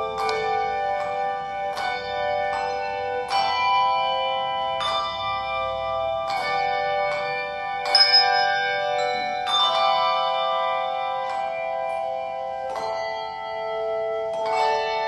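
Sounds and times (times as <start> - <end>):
handbell choir playing chords: 0.0 - 15.0.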